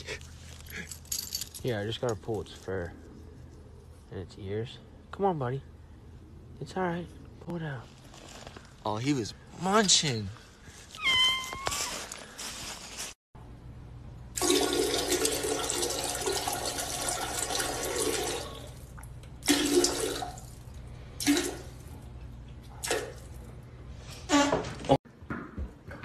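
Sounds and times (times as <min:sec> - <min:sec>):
toilet flushing: 0:14.3 - 0:18.8, 0:19.4 - 0:20.6, 0:21.2 - 0:21.8.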